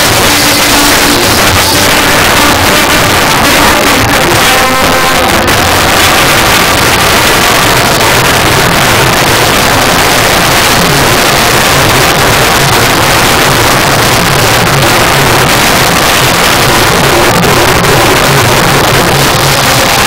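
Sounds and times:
distorted loud music: 0:00.0 - 0:20.0
low bass pulse: 0:00.0 - 0:20.0.

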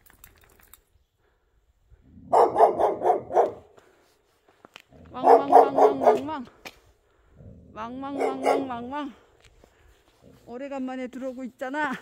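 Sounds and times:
dog barking: 0:02.3 - 0:03.7, 0:05.2 - 0:06.4, 0:08.2 - 0:08.9.

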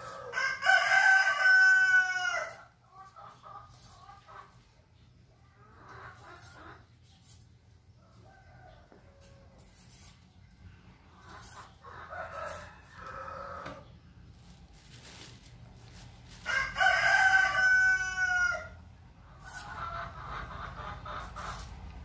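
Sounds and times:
rooster crowing: 0:00.0 - 0:02.6, 0:12.1 - 0:13.8, 0:16.4 - 0:18.8
chickens clucking: 0:02.0 - 0:09.4, 0:10.3 - 0:15.3, 0:19.0 - 0:22.0.

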